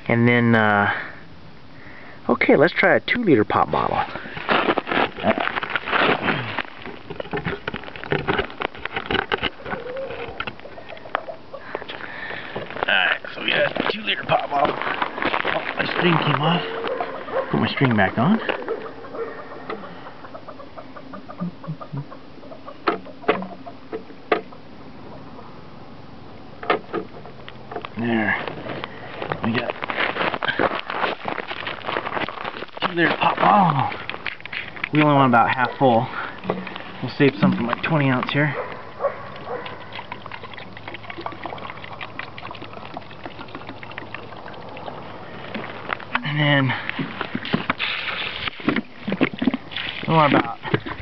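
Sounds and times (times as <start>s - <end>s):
water pouring into plastic bottle: 38.9s - 46.1s.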